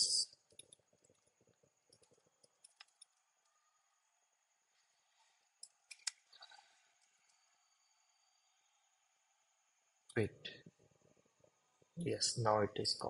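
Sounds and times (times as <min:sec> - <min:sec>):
faint computer clicks: 0:01.9 - 0:03.2.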